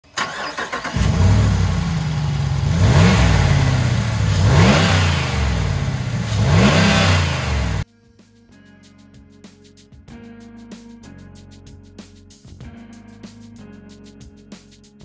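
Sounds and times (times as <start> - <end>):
car engine starting and revving: 0.1 - 7.8.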